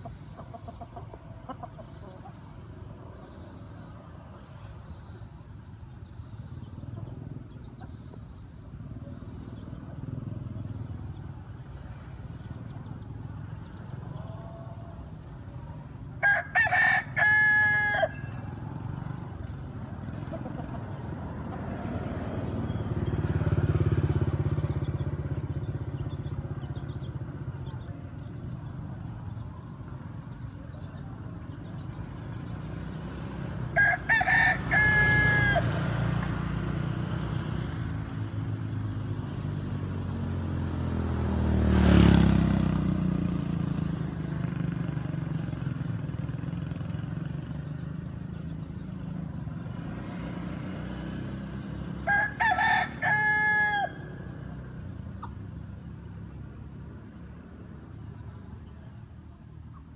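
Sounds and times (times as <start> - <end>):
low rumble of road traffic: 0.0 - 59.9
vehicle passing close by: 0.1 - 59.5
rooster crowing: 16.2 - 18.6, 33.7 - 35.9, 52.0 - 54.5.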